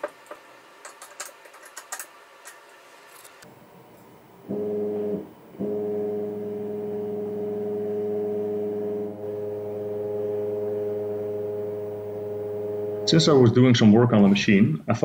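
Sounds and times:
stepper motor humming: 3.4s - 13.5s.

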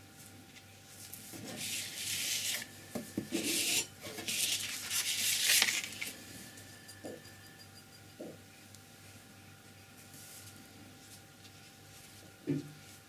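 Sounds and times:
paper scraping on tabletop: 1.3s - 2.7s, 3.3s - 6.1s.

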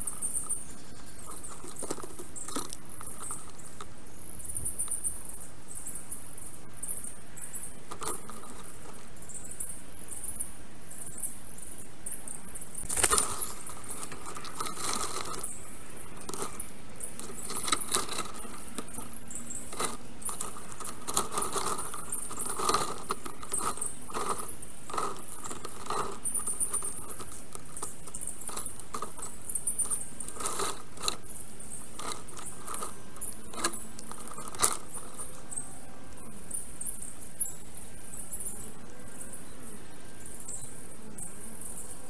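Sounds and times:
high chittering: 0.0s - 10.1s, 12.6s - 35.7s
sticks clicking and rattling: 1.2s - 3.9s, 7.9s - 9.0s, 12.8s - 15.6s, 16.2s - 35.3s.

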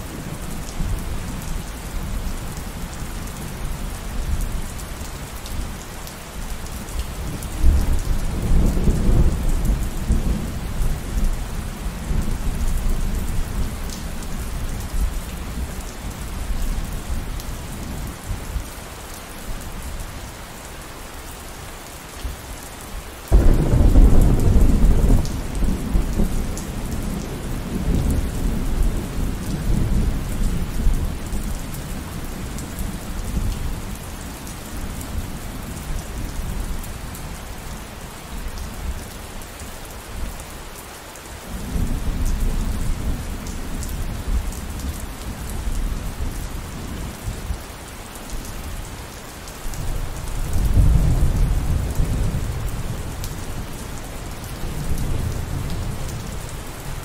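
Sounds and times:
steady rain: 0.0s - 57.0s
rolling thunder: 23.3s - 30.2s.

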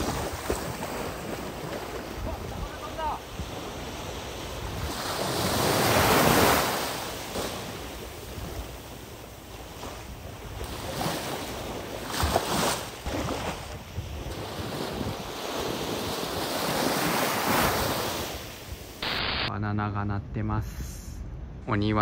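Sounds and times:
wind on microphone: 0.0s - 6.6s, 13.0s - 18.9s
small waves washing on sand: 0.0s - 19.0s.

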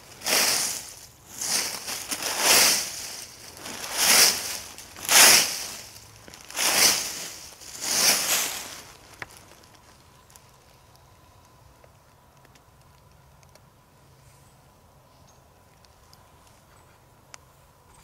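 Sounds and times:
footsteps crunching dry leaves: 0.0s - 10.8s.

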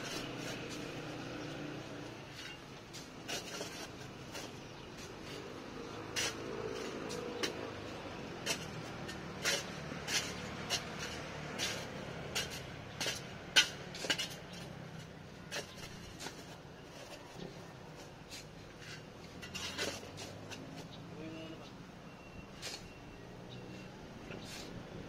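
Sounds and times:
metal tool chopping into dry soil: 8.4s - 14.7s.

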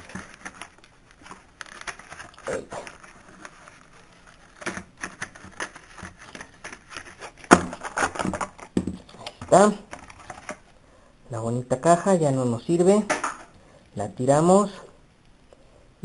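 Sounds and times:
plastic packaging crackling: 0.0s - 10.6s.

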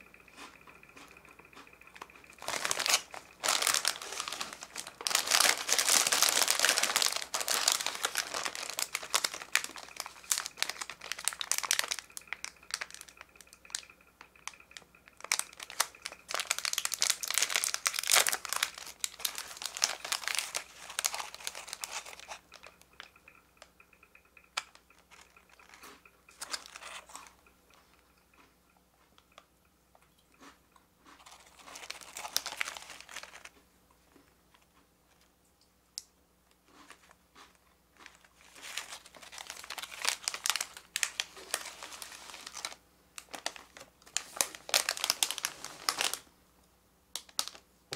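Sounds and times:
plastic wrappers crinkling: 1.9s - 27.4s, 31.2s - 33.6s, 36.9s - 46.3s, 47.2s - 47.6s.

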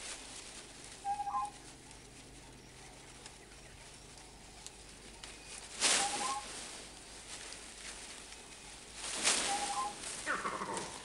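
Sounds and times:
faint outdoor background hiss: 0.0s - 11.0s
bird trill call: 1.0s - 1.6s, 5.4s - 6.5s, 9.4s - 11.0s
brief rustling: 4.6s - 11.0s.

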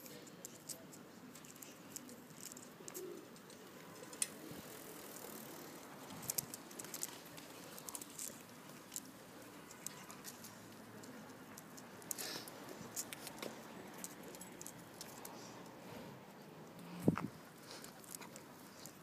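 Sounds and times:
dog claws ticking on asphalt: 6.0s - 15.8s.

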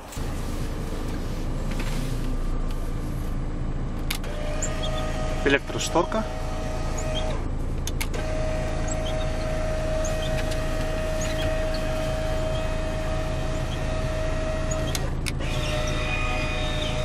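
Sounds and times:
electric motor whining: 4.0s - 17.0s
motor stopping clicks: 6.4s - 17.0s.

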